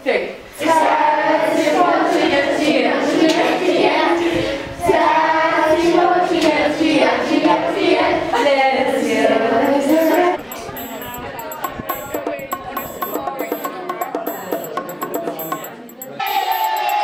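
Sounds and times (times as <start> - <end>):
children singing together: 0.6 - 10.4.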